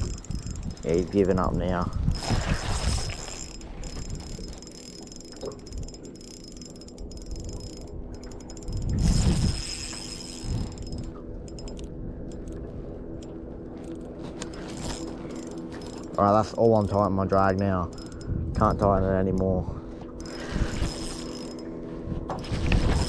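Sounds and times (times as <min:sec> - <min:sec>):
ratchety reel clicking: 0:00.0 - 0:02.4, 0:03.0 - 0:11.9, 0:14.8 - 0:18.8, 0:20.2 - 0:21.6
fishing reel whirring: 0:00.0 - 0:23.0.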